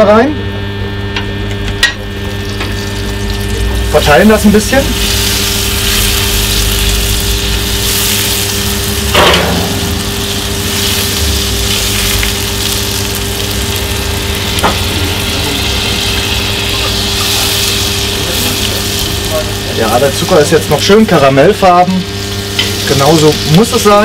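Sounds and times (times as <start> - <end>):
low motor-like hum: 0.0 - 24.0
butter and sugar sizzling in pan: 1.8 - 24.0.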